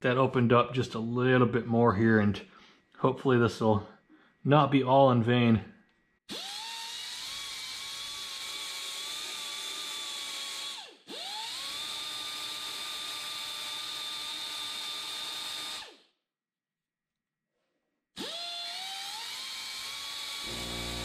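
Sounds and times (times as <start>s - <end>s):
pneumatic die grinder whining: 6.3s - 16.0s, 18.2s - 21.0s.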